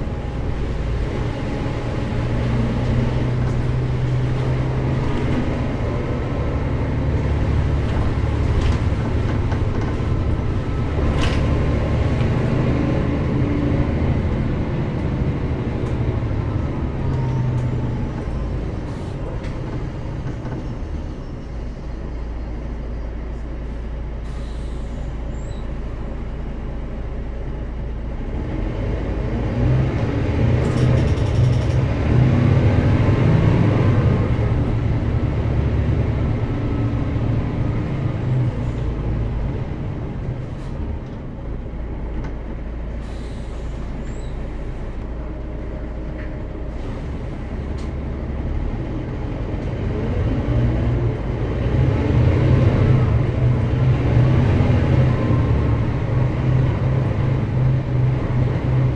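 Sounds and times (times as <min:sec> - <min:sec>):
bus diesel engine: 0:00.0 - 0:58.9.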